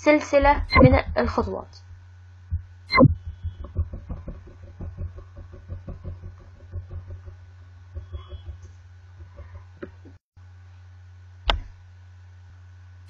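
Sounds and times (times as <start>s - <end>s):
low electrical hum: 0.0s - 13.0s
sharp mouse click: 0.7s - 0.9s.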